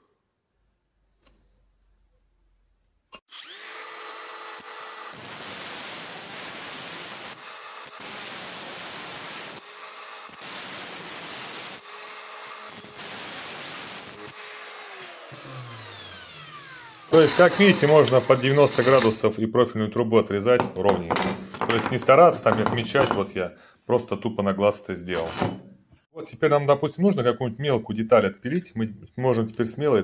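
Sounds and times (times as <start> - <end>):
angle grinder cutting steel tube: 3.3 - 19.2
grinder disc whining: 6.8 - 19.2.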